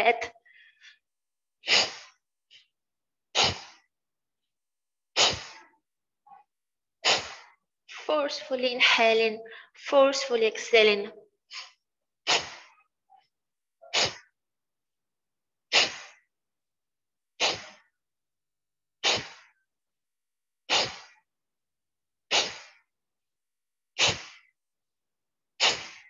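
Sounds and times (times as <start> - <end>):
quick breaths in: 0.4 - 1.0, 1.6 - 2.7, 3.3 - 3.9, 5.1 - 5.8, 7.0 - 7.6, 9.5 - 9.8, 11.5 - 12.9, 13.9 - 14.3, 15.7 - 16.3, 17.4 - 17.9, 19.0 - 19.6, 20.7 - 21.3, 22.3 - 22.9, 24.0 - 24.6, 25.6 - 26.0
woman exhaling sharply through nose: 1.6 - 2.2, 3.4 - 3.9, 5.2 - 5.8, 7.0 - 7.6, 11.5 - 12.8, 13.9 - 14.3, 15.7 - 16.2, 17.4 - 17.8, 19.0 - 19.5, 20.7 - 21.2, 22.3 - 22.8, 24.0 - 24.5, 25.6 - 26.0.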